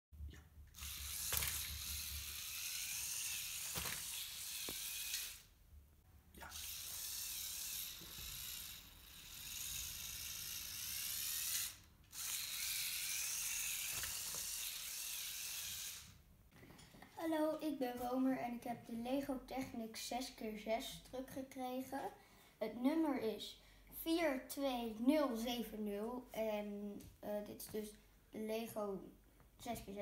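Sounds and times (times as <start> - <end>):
toy electric motor whirring: 0.7 - 5.5, 6.4 - 16.2.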